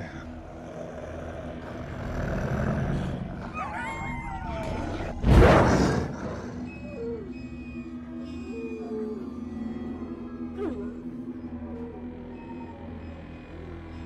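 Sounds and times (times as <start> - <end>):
wolf snarling: 0.0 - 4.2
wolves growling: 0.0 - 14.0
wolves howling: 0.0 - 14.0.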